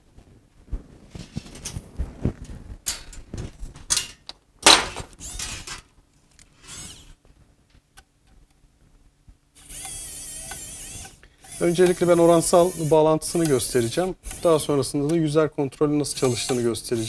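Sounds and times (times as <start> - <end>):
scraping rustle: 0.1 - 4.2.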